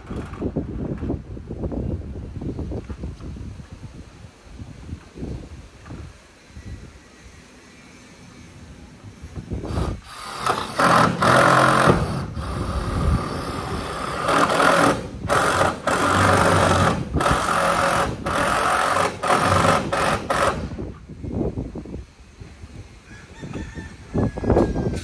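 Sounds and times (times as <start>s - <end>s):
power drill driving screws into metal: 9.7s - 20.8s.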